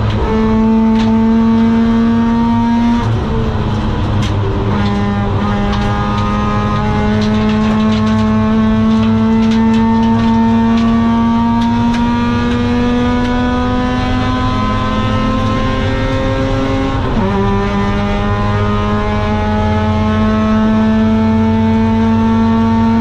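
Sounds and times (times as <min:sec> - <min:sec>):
rotary engine revving and accelerating: 0:00.0 - 0:23.0.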